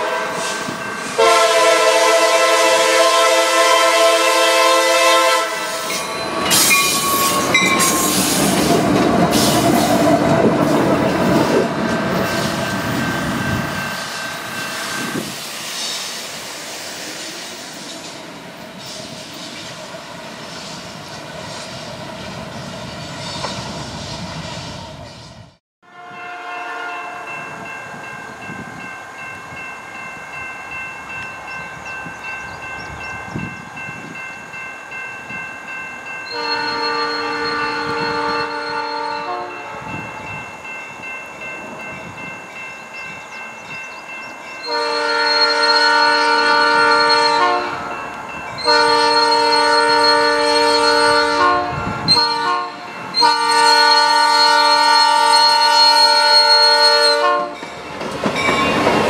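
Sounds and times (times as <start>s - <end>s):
train horn: 0.0s - 8.4s, 25.8s - 27.6s, 36.3s - 40.1s, 44.6s - 57.6s
railroad crossing bell ringing: 0.0s - 15.3s, 26.0s - 59.0s
train wheel clatter: 57.5s - 59.0s.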